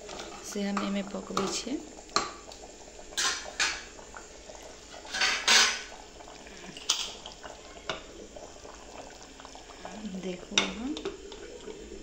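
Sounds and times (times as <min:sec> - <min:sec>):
metal ladle scraping pot: 0:04.9 - 0:06.0.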